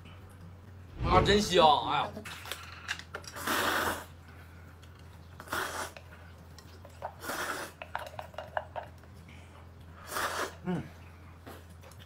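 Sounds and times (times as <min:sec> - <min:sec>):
person slurping noodles: 0:05.4 - 0:06.0, 0:10.0 - 0:10.6.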